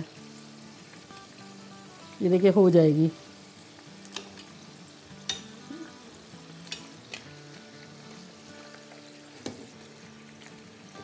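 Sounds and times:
fries sizzling in hot oil: 0:00.0 - 0:11.0
metal utensils clinking: 0:06.6 - 0:07.2.

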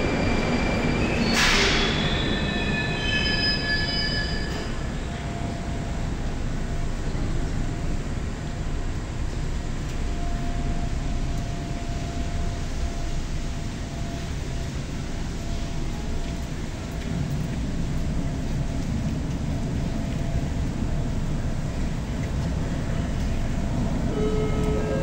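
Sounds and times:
train wheel squeals: 0:00.0 - 0:06.0, 0:24.1 - 0:25.0
train low rumble: 0:00.0 - 0:25.0.

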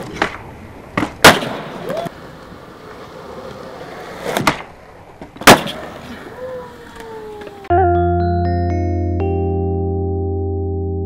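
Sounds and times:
skateboard tail snapping: 0:00.0 - 0:02.1, 0:04.2 - 0:06.2
skateboard landing slap: 0:00.0 - 0:02.2, 0:04.2 - 0:06.2
skateboard wheels rolling on concrete: 0:00.0 - 0:07.7.

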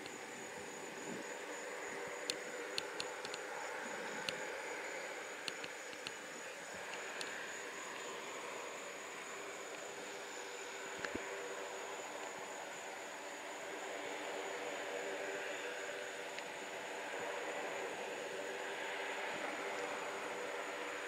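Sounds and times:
distant aircraft engines droning: 0:00.0 - 0:21.0
sharp ticks: 0:05.4 - 0:06.2.

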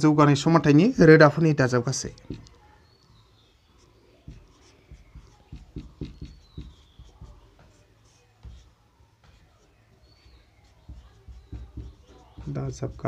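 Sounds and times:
marker pen writing on whiteboard: 0:02.0 - 0:13.0.

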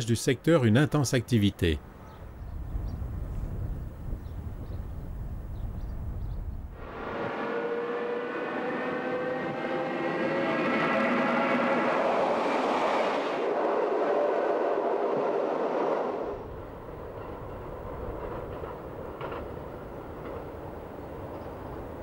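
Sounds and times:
train running: 0:06.8 - 0:22.0
rail clicks: 0:15.0 - 0:22.0.

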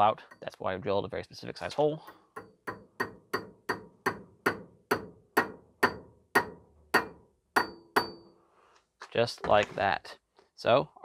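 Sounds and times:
hammer tapping metal pin: 0:02.0 - 0:08.3.

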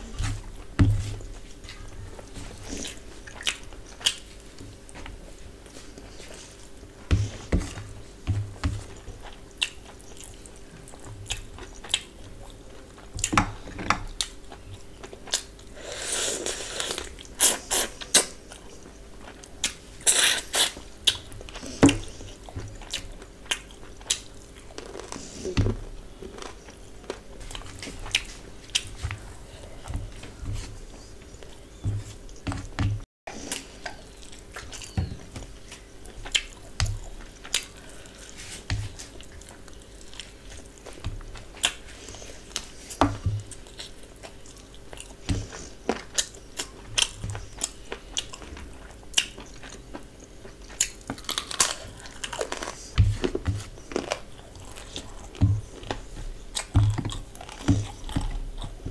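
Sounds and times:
faint steady hum: 0:00.0 - 0:58.9
person chewing: 0:02.5 - 0:32.7, 0:33.4 - 0:58.9.

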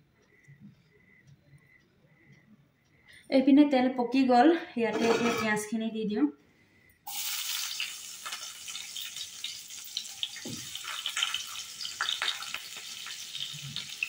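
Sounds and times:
onions sizzling in hot oil: 0:07.1 - 0:14.0.

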